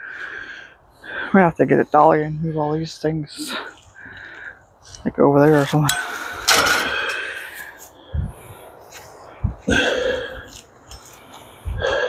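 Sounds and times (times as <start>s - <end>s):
man breathing hard: 0.0s - 1.4s, 3.4s - 4.8s, 6.0s - 12.0s
dull low thumps: 8.1s - 8.5s, 9.4s - 9.8s.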